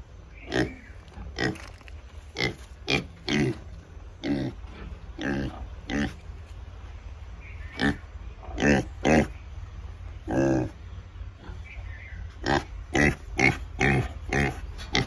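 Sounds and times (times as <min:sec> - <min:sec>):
pig grunting: 0:02.4 - 0:06.2, 0:07.8 - 0:09.4, 0:10.2 - 0:10.8, 0:12.4 - 0:15.0.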